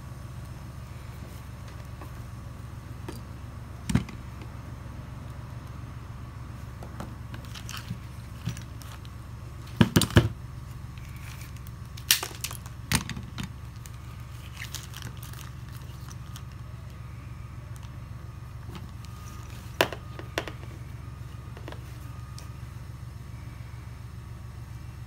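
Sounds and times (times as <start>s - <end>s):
steady low hum: 0.0s - 25.0s
clicks and clatters of small parts: 11.0s - 16.6s.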